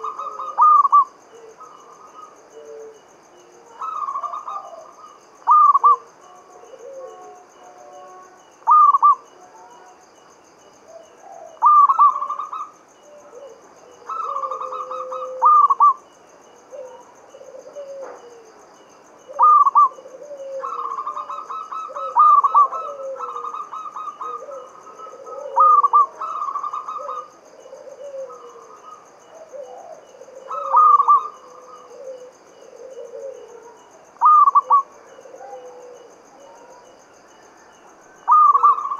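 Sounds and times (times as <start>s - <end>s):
dove cooing: 0.0s - 9.9s, 10.8s - 16.0s, 16.6s - 18.6s, 19.2s - 37.0s, 38.2s - 38.9s
soft low bird calls: 19.3s - 36.8s.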